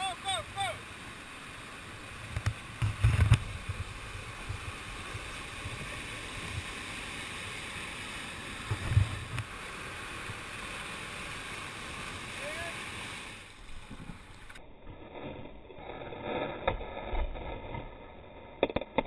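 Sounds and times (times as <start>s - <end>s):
whitewater rapids rushing: 0.0s - 13.8s.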